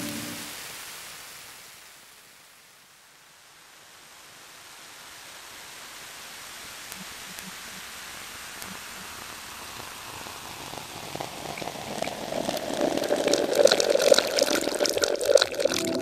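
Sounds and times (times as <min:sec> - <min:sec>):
steady hiss: 0:00.0 - 0:16.0
gritty crackling texture: 0:08.6 - 0:16.0.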